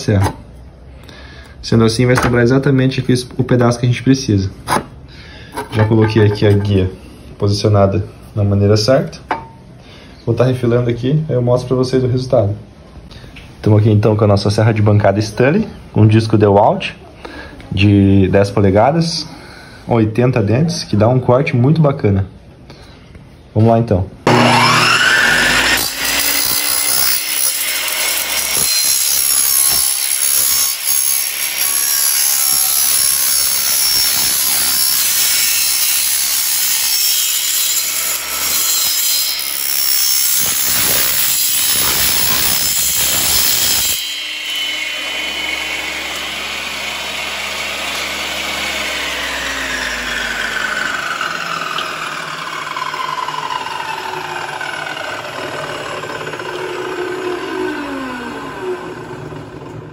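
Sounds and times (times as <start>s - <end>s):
saw cutting aluminium: 24.2s - 59.9s
table saw whine: 24.2s - 59.9s.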